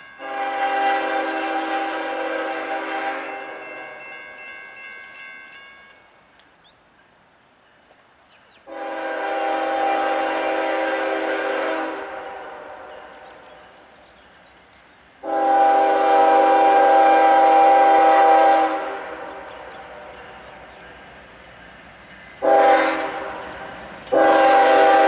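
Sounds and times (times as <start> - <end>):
locomotive air horn blasts: 0.2 - 3.6, 8.7 - 13.2, 15.2 - 20.2, 22.4 - 23.5, 24.1 - 25.0.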